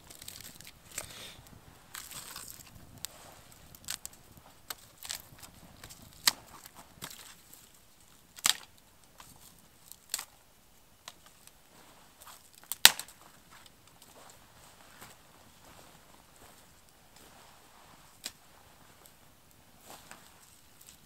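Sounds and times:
dry wood cracking: 0:00.0 - 0:14.4, 0:18.0 - 0:18.4.

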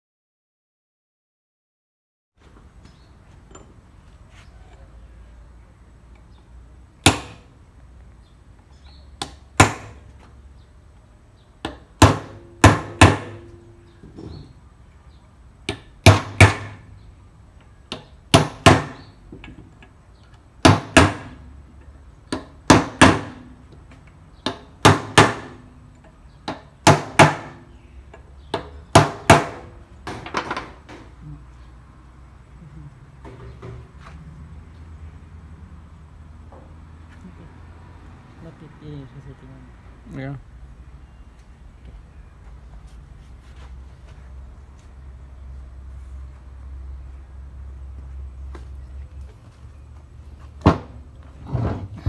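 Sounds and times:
hammer striking steel punch: 0:07.0 - 0:07.5, 0:11.6 - 0:13.6.

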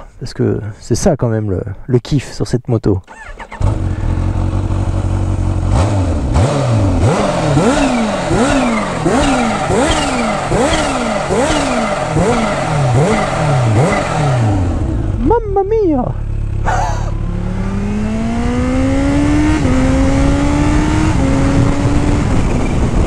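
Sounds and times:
motorcycle engine revving: 0:03.1 - 0:23.0
supercharger whine: 0:16.2 - 0:23.0.

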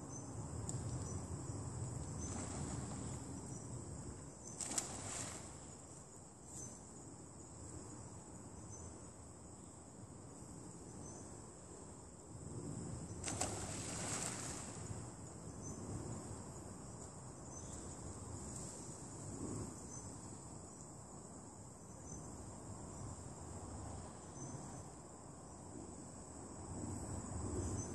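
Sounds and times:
high-pitched insect chorus: 0:00.0 - 0:11.5, 0:12.8 - 0:27.9.

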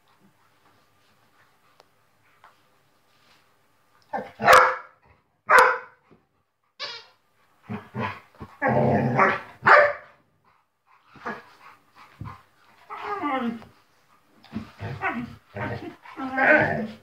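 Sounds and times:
dogs barking: 0:04.4 - 0:06.0, 0:09.2 - 0:10.1
dogs growling and grunting: 0:07.6 - 0:09.6, 0:14.4 - 0:17.0.

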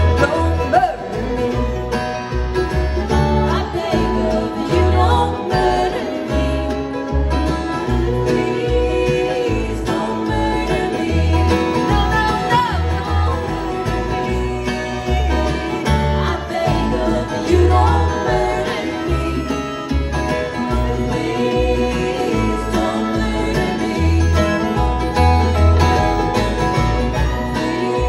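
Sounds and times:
acoustic guitar strumming: 0:00.0 - 0:28.0
bass line: 0:00.0 - 0:28.0
woman singing: 0:02.9 - 0:20.0, 0:20.7 - 0:25.1, 0:27.4 - 0:28.0.

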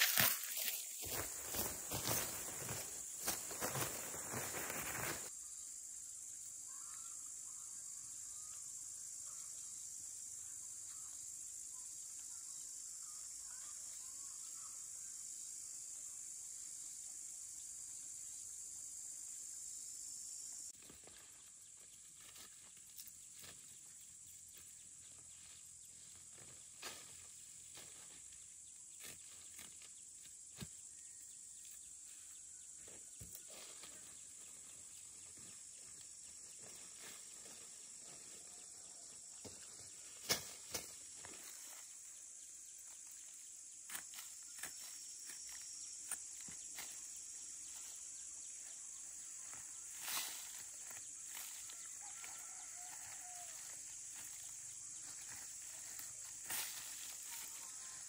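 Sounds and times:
rustling of leafy plants: 0:00.0 - 0:05.3, 0:42.8 - 0:58.0
high-pitched insect chorus: 0:00.0 - 0:58.0
faint bird calls: 0:06.6 - 0:09.6.

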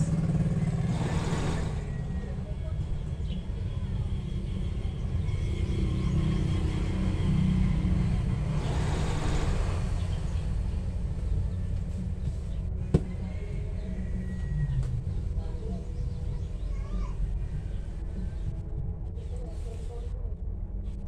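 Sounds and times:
sewing machine running: 0:00.3 - 0:02.2, 0:08.5 - 0:10.2.

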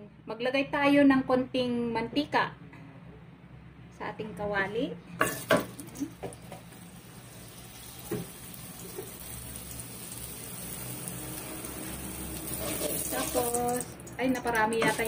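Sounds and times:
oil sizzling in a wok: 0:05.3 - 0:15.0.

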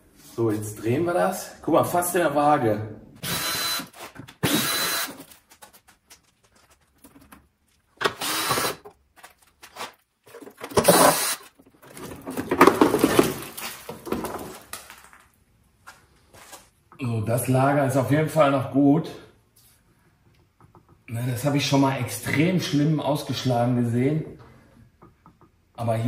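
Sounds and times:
power drill bursts: 0:03.2 - 0:05.2, 0:08.0 - 0:08.8, 0:10.7 - 0:11.5.

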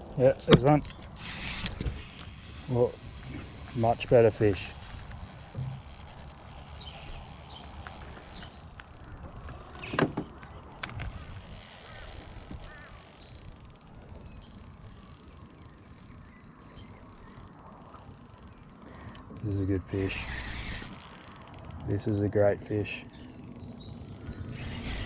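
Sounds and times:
fishing rod handling sounds: 0:00.4 - 0:16.6.

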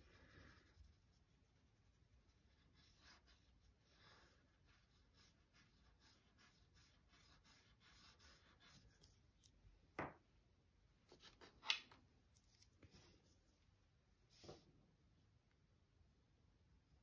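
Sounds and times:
oil pastel scratching on paper: 0:00.0 - 0:09.4.

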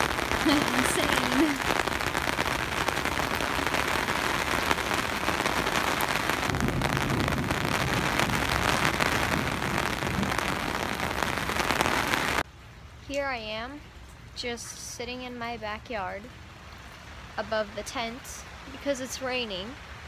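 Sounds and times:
heavy rain on fabric umbrella: 0:00.0 - 0:12.5.

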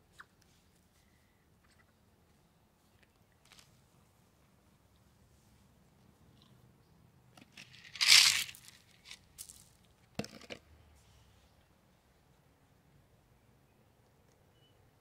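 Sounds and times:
seeds rustling: 0:07.6 - 0:09.8
seeds pattering on pavers: 0:07.6 - 0:10.1.

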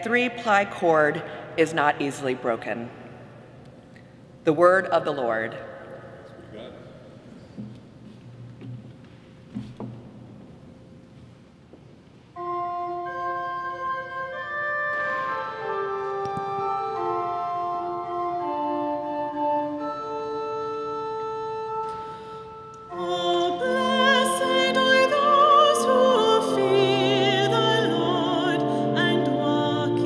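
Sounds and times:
church organ chords: 0:12.4 - 0:30.0
solo singer with vibrato: 0:22.9 - 0:30.0.

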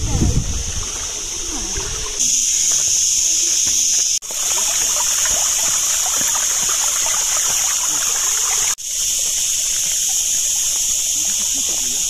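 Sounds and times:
steady high hiss: 0:00.0 - 0:12.0
water splashing from a pipe: 0:00.0 - 0:12.0.

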